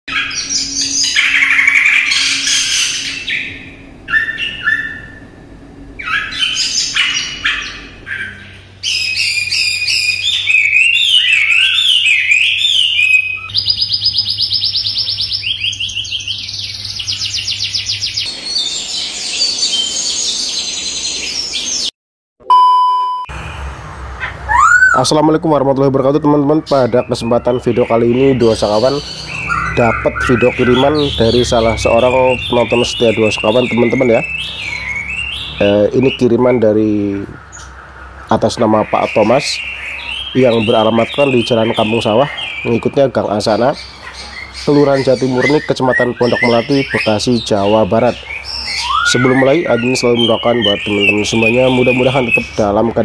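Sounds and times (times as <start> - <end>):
songbirds singing: 0.1 - 21.9, 23.3 - 53.0
brief steady tone: 22.4 - 23.3.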